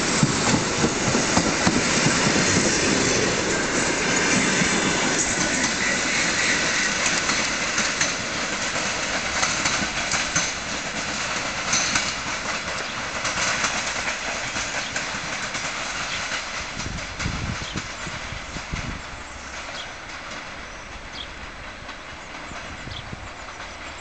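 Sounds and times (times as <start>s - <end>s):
train rumble: 0.0s - 24.0s
train wheels clacking over rail joints: 0.0s - 24.0s.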